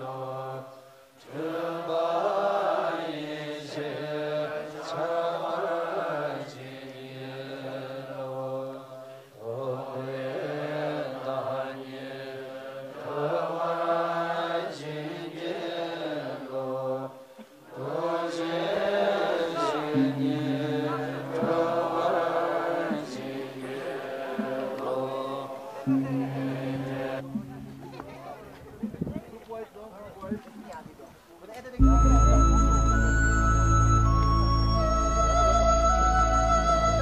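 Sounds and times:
monks chanting in unison: 0:00.0 - 0:27.6.

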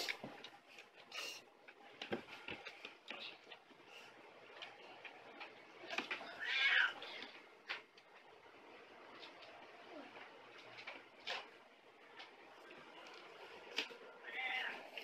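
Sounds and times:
cat meowing: 0:06.2 - 0:07.0, 0:14.2 - 0:15.0.

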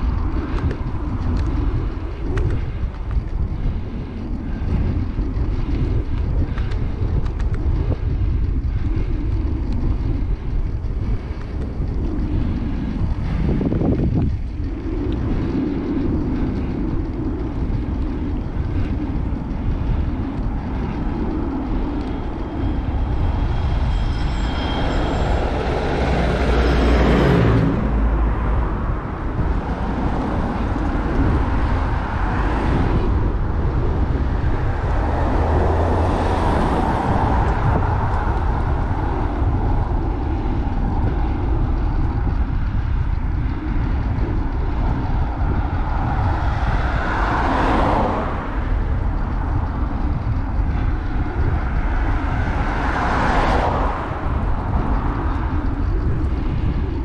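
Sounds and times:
road noise: 0:00.0 - 0:57.0
wind rumble on microphone: 0:00.0 - 0:57.0
vehicle passing by: 0:17.6 - 0:57.0.

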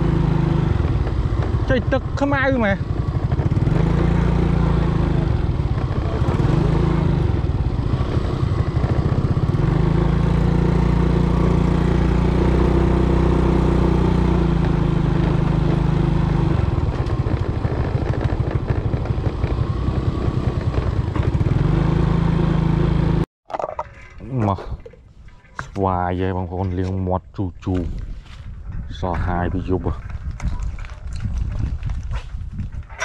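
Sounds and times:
motor scooter engine running: 0:00.0 - 0:23.2.

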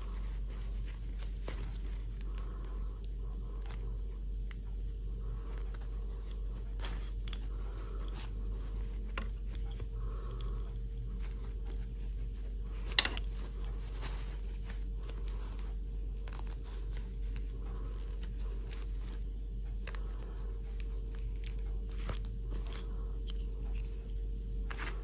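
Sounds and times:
low steady hum: 0:00.0 - 0:25.0
fabric rustling: 0:11.0 - 0:15.8.

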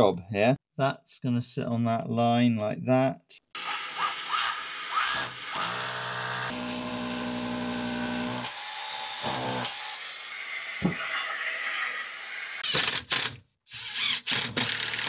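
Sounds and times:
power drill boring into wall: 0:03.6 - 0:15.0.

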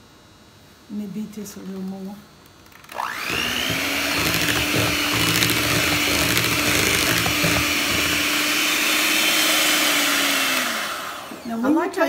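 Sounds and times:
electric hand mixer whirring: 0:02.7 - 0:11.6.

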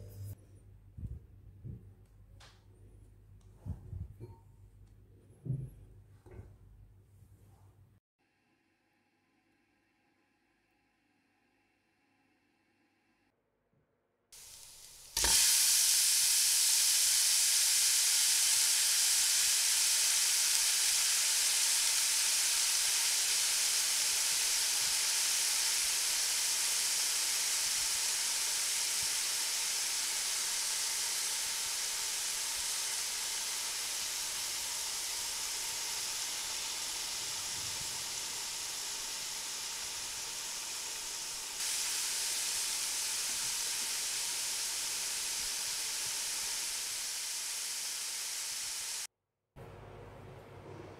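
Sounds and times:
vegetables sizzling in oil: 0:14.4 - 0:49.1.

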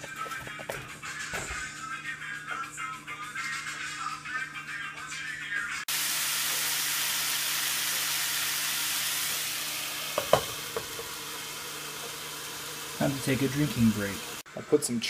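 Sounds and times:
meat sizzling in a frying pan: 0:05.9 - 0:14.4.

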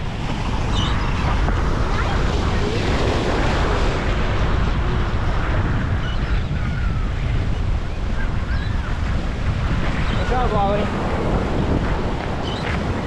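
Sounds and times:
wind rumbling on microphone: 0:00.0 - 0:13.0
waves breaking on rocks: 0:07.5 - 0:13.0.

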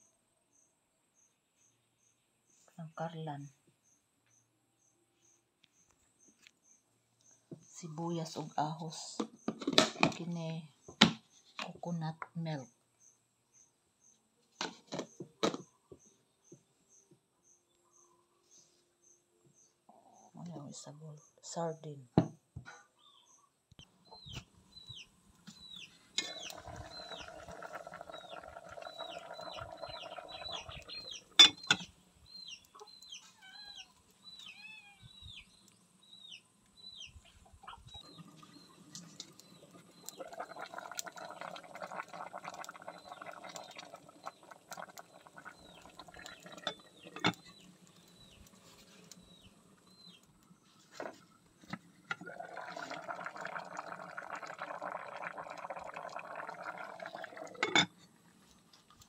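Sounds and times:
pot bubbling on a fire: 0:07.4 - 0:12.6, 0:23.8 - 0:34.4, 0:35.1 - 0:59.0.

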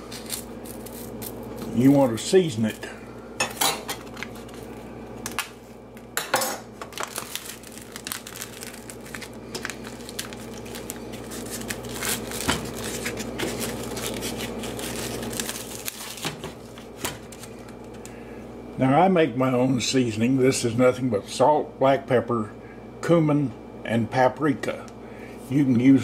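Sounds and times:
plastic film crinkling: 0:00.0 - 0:02.8, 0:06.8 - 0:18.1.

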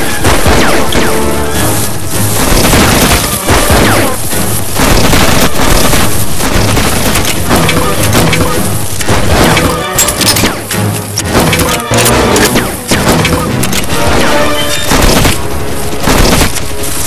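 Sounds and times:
heavy booms and crashing impacts: 0:00.0 - 0:09.8
dramatic film music: 0:00.0 - 0:17.0.

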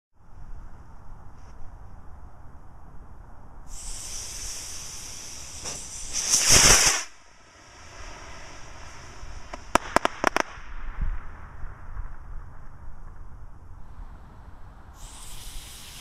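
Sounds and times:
sharp pops: 0:03.7 - 0:07.3, 0:09.4 - 0:11.1
rocket motor hiss and rush: 0:03.7 - 0:10.4, 0:15.0 - 0:16.0.

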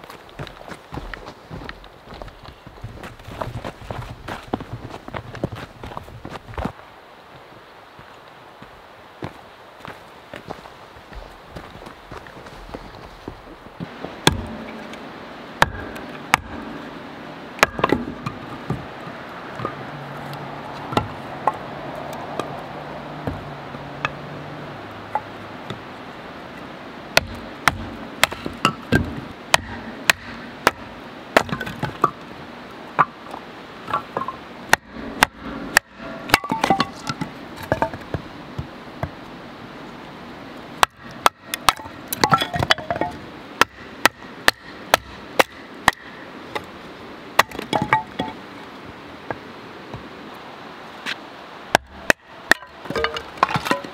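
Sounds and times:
steady background hiss: 0:00.0 - 0:53.9
wooden knocks and cracks: 0:33.9 - 0:39.2.

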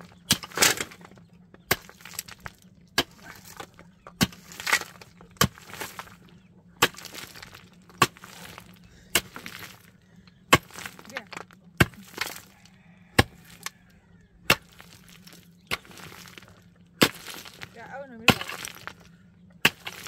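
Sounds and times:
loose stones rattling: 0:00.0 - 0:13.8, 0:14.6 - 0:19.1
pickaxe striking stony ground: 0:00.2 - 0:01.1, 0:01.7 - 0:06.2, 0:06.8 - 0:09.8, 0:10.5 - 0:12.5, 0:13.2 - 0:13.7, 0:14.5 - 0:16.4, 0:17.0 - 0:19.0, 0:19.6 - 0:20.0.

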